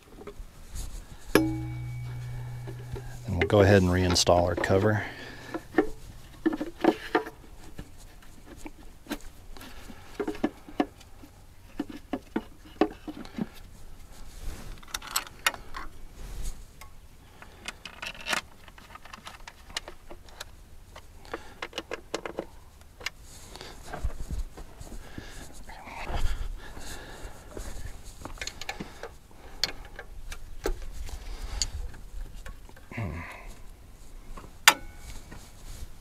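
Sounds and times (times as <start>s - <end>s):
engine parts clicking and rattling: 0.0s - 13.8s, 17.3s - 24.1s.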